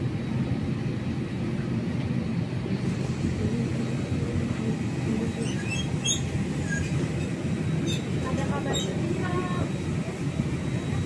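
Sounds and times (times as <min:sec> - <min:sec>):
airplane cabin ventilation rumble: 0:00.0 - 0:11.0
passengers shuffling: 0:02.9 - 0:11.0.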